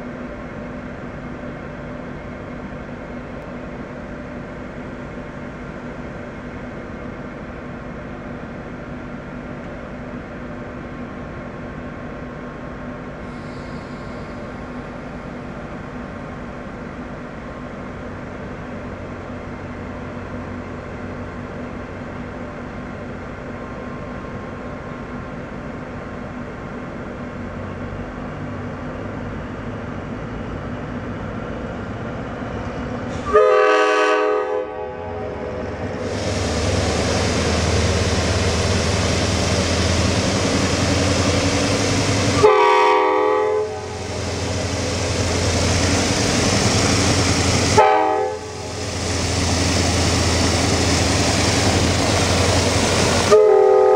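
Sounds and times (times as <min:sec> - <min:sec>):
diesel locomotive engine rumble: 0:00.0 - 0:53.9
locomotive air horn blasts: 0:33.2 - 0:35.4, 0:42.3 - 0:44.1, 0:47.7 - 0:48.7, 0:53.2 - 0:53.9.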